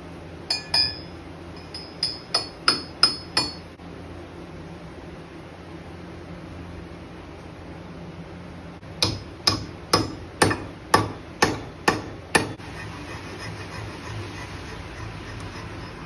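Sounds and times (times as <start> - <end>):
hammer striking axe head: 0.5 - 3.7, 9.0 - 12.6.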